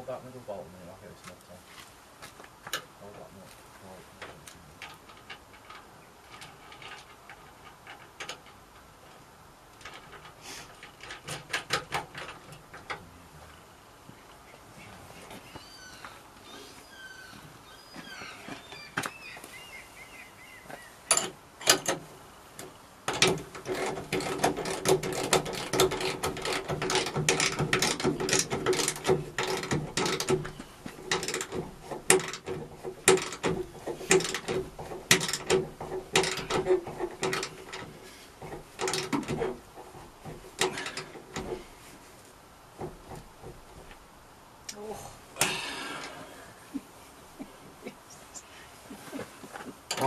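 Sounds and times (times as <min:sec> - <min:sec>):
ratcheting spanner clicking: 0:23.1 - 0:37.9.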